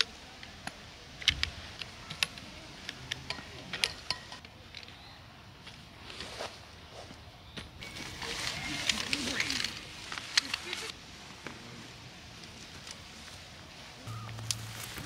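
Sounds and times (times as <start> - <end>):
camping gear clicks and taps: 0.0 - 5.0.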